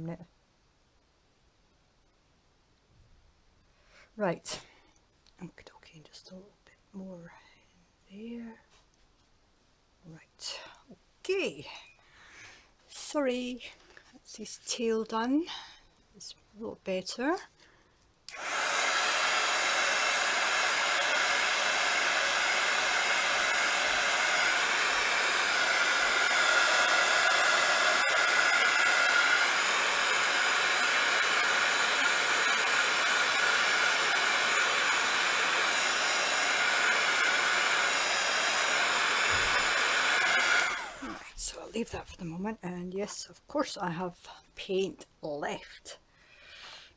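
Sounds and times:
hot-air dryer running: 18.3s - 41.2s.

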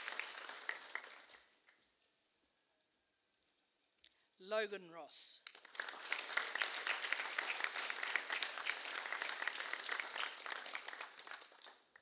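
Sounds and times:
audience applauding: 0.0s - 1.6s, 5.4s - 12.0s.

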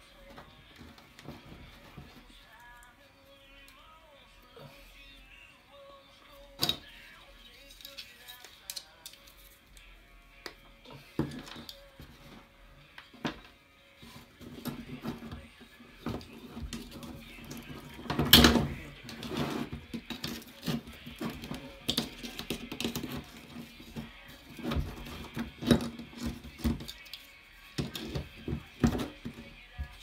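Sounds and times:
pliers and plastic parts clicking: 7.6s - 10.6s, 16.2s - 29.4s.

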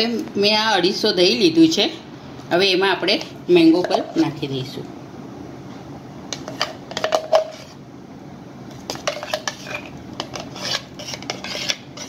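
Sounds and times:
utensils clinking on steel bowl: 6.4s - 7.6s, 8.9s - 12.0s.

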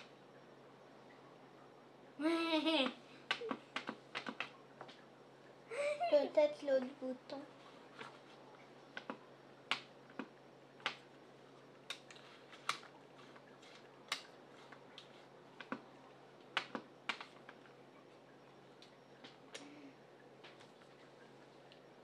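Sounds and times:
sharp clicks and light taps: 2.8s - 5.0s, 9.0s - 11.0s, 13.7s - 15.8s, 16.4s - 17.7s.

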